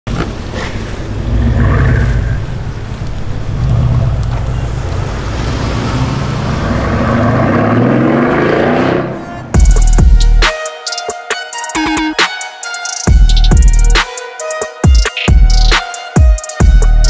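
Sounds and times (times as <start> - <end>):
car engine accelerating: 1.1 - 9.5.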